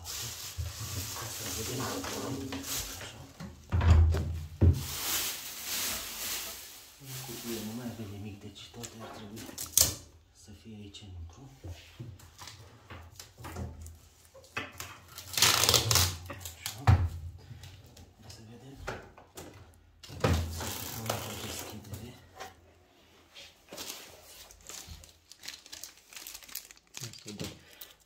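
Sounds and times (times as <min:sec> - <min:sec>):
packing wrap rustling: 0:00.0 - 0:03.4, 0:04.7 - 0:08.1, 0:09.5 - 0:10.0, 0:15.0 - 0:16.8, 0:20.5 - 0:21.9, 0:23.7 - 0:28.0.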